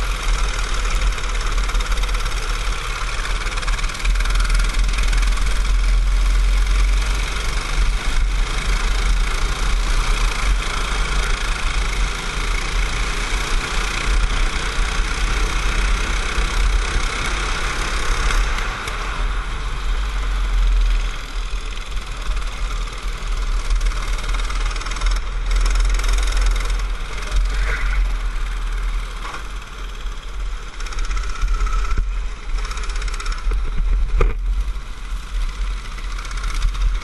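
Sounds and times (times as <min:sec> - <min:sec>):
kart engine running hard: 0:00.0 - 0:37.0
heavy low rumble: 0:25.2 - 0:32.8, 0:33.4 - 0:37.0.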